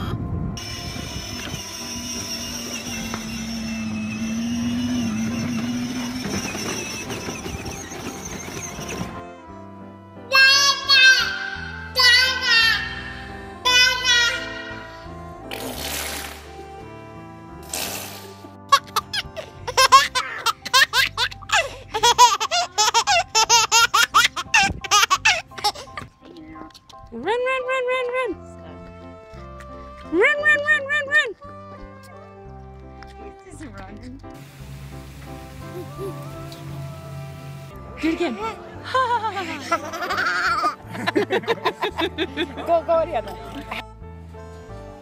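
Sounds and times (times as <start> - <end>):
electric motor hum and whine: 0.3 - 8.9
plastic wheels rolling on concrete: 0.6 - 9.2
baby laughing: 18.7 - 26.1, 39.0 - 42.5.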